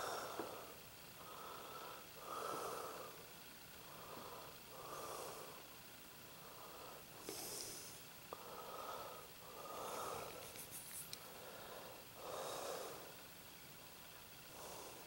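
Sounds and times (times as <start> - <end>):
slow breathing: 0.0 - 5.7, 6.3 - 13.2.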